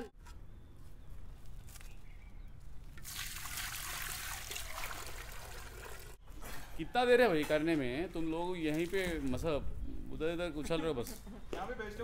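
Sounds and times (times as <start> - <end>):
water pouring into metal pot: 3.0 - 6.2.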